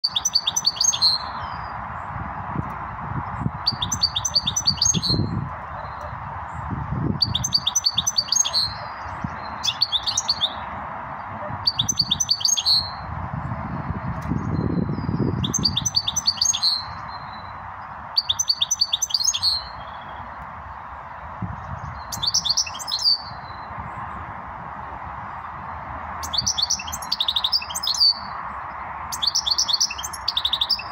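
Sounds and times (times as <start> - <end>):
finch singing twittering trills: 0.0 - 1.8, 3.3 - 10.6, 11.6 - 13.1, 13.7 - 20.3, 21.2 - 23.8, 26.2 - 30.9.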